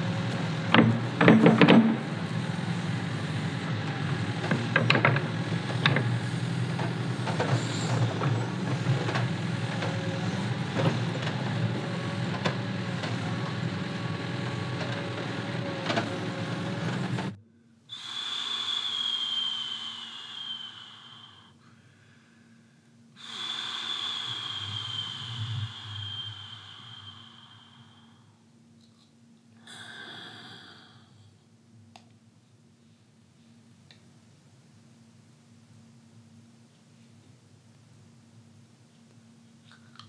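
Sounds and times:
steady low rumble: 23.9 - 28.6.

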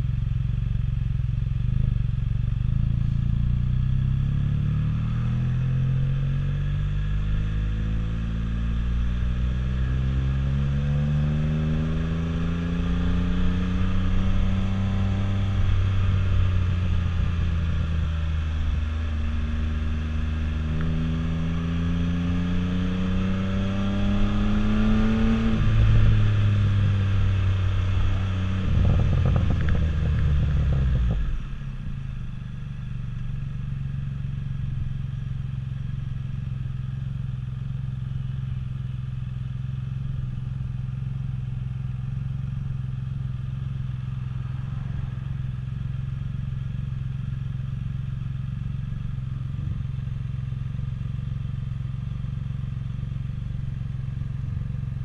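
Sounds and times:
motorcycle engine idling: 0.0 - 4.6, 25.2 - 55.0
motorcycle engine revving: 0.0 - 55.0.

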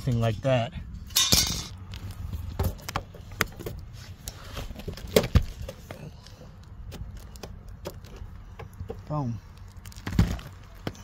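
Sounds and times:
sharp metal knocks: 1.1 - 1.8.

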